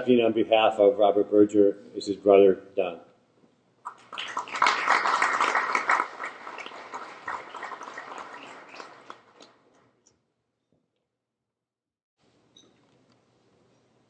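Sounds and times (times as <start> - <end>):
audience applauding: 3.9 - 9.6.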